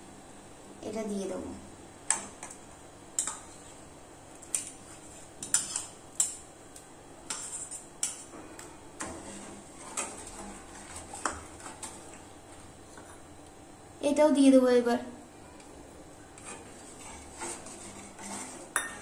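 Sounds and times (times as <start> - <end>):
metal ladle clinking on pan: 18.8 - 19.0.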